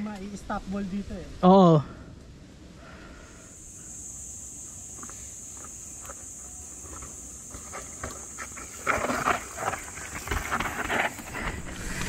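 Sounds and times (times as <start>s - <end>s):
steady high-pitched hiss: 0.0s - 12.0s
bike tyre and frame clatter: 6.8s - 12.0s.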